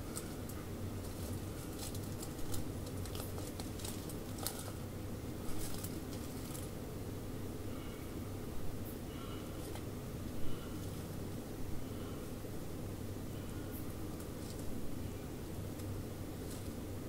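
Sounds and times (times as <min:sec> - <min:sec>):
animal foraging in dry leaves: 0:00.0 - 0:06.8, 0:09.3 - 0:12.2, 0:13.3 - 0:16.9
low steady hum: 0:00.0 - 0:17.0.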